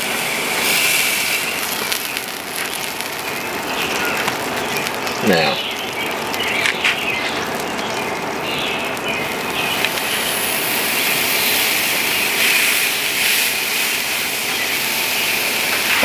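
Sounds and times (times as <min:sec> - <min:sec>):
steak sizzling on a grill: 0:00.0 - 0:16.0.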